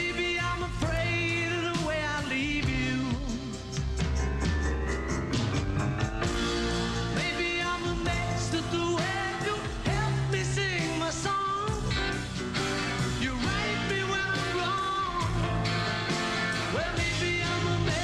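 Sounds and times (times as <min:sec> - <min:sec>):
live rock band playing: 0:00.0 - 0:18.0.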